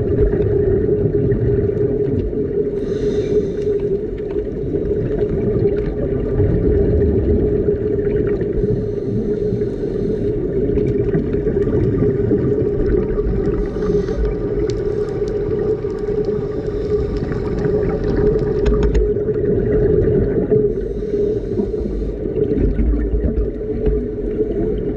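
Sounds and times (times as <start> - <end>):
underwater low drone: 0.0 - 24.9
scuba regulator breaths hissing: 2.8 - 4.1, 8.6 - 10.6, 13.4 - 17.9, 20.7 - 22.4.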